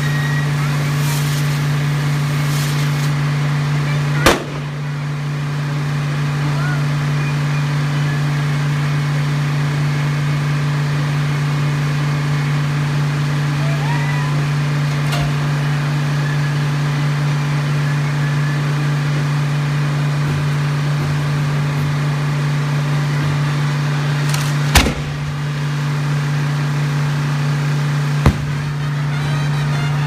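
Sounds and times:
low engine-like hum: 0.0 - 30.0
firework bangs: 4.2 - 5.0, 24.2 - 25.6, 28.2 - 29.1.

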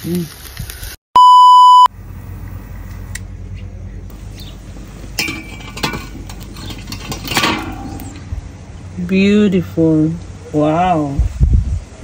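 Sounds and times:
steady low hum: 1.9 - 9.0
metal grate and tongs clinking: 4.2 - 8.3.

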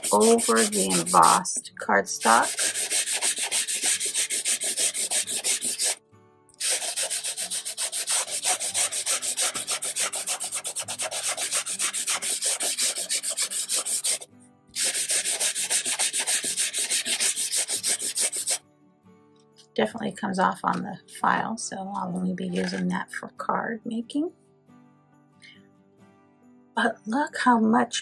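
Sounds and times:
nail file sanding cardstock: 0.0 - 1.5, 2.2 - 6.0, 6.6 - 18.6.

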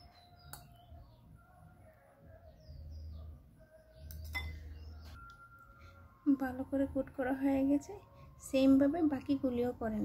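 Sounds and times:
small birds chirping: 0.0 - 5.2.

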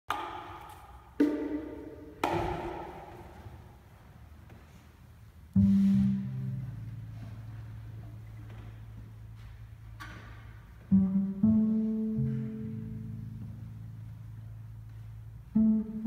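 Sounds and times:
bongo hit: 0.1 - 3.4
plucked double bass: 10.8 - 16.0.

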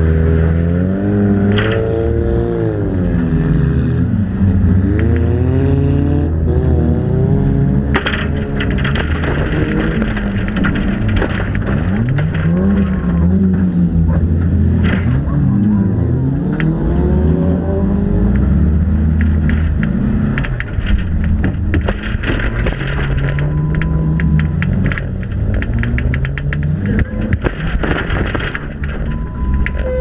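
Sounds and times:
rattles and knocks from car body: 7.9 - 15.3, 19.1 - 29.9.

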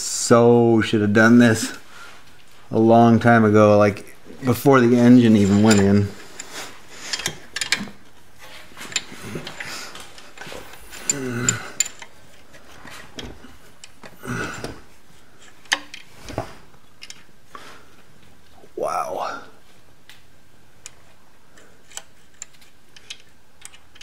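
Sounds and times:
person grunting: 18.6 - 19.6
small metal clicks and taps: 21.6 - 24.0.

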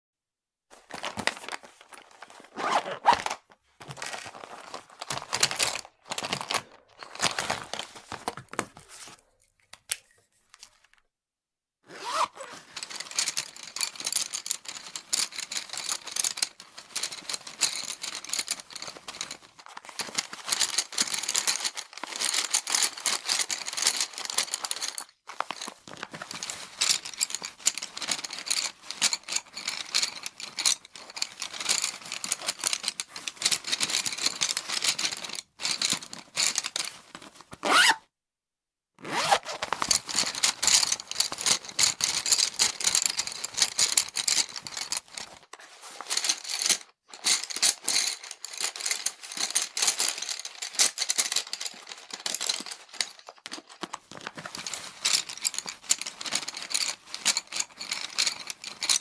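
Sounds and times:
cloth rustling: 0.7 - 3.4
pencils clattering together: 0.7 - 11.0, 12.6 - 37.6, 39.4 - 59.0.

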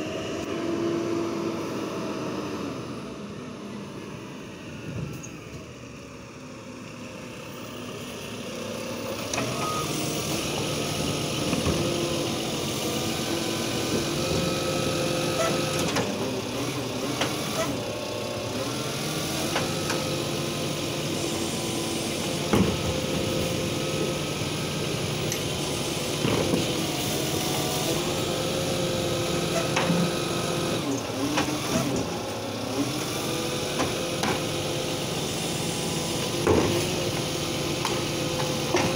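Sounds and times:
garbage truck engine: 0.0 - 38.9
clanks and knocks of bin arm: 22.4 - 23.3, 36.4 - 37.0, 37.8 - 38.9.

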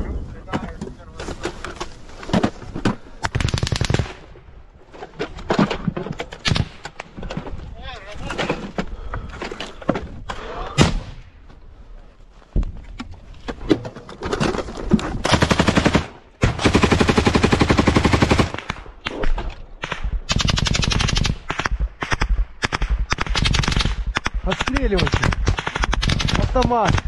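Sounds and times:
automatic gunfire: 3.3 - 4.2, 15.3 - 18.8, 19.8 - 27.0.

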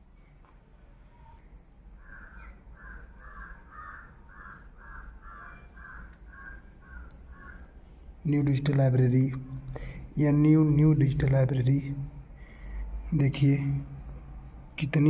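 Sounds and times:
crow cawing: 2.0 - 7.8.

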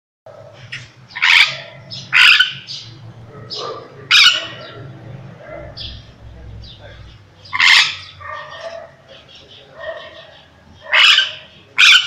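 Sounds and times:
parrot squawking: 0.7 - 2.9, 3.5 - 5.0, 7.4 - 9.0, 9.8 - 12.0.

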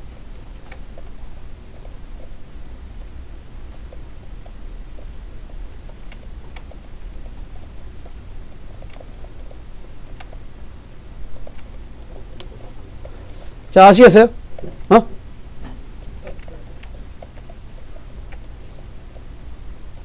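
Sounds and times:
steady low hum: 0.0 - 20.0
mouse and keyboard clicks: 0.2 - 2.4, 3.7 - 10.4, 11.2 - 13.7, 16.0 - 19.3.

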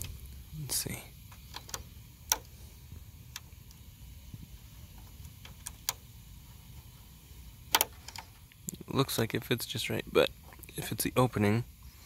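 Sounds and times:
metallic clicks of driver bit: 7.7 - 9.3.

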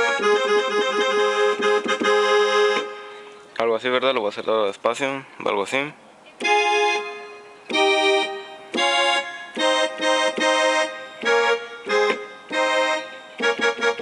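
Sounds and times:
electronic keyboard slow melody: 0.0 - 3.6, 6.4 - 14.0.

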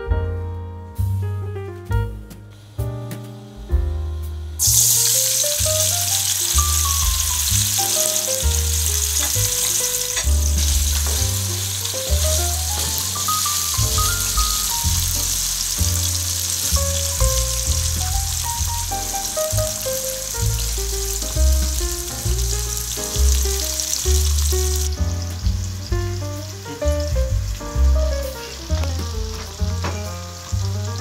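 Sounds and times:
piano music: 0.0 - 31.0
potatoes sizzling in hot oil: 4.6 - 27.9, 28.5 - 31.0.

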